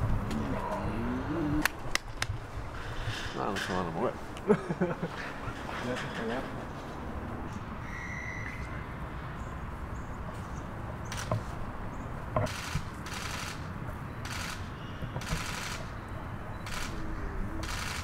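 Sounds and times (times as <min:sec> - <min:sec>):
camera shutters firing: 0:14.3 - 0:15.9, 0:17.6 - 0:18.0.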